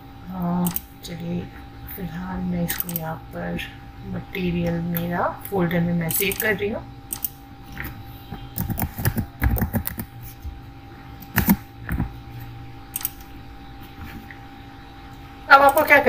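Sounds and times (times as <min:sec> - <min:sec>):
faint steady hum: 0:00.0 - 0:16.0
keyboard typing: 0:00.6 - 0:00.9, 0:04.6 - 0:10.5, 0:11.2 - 0:12.2, 0:12.9 - 0:14.4.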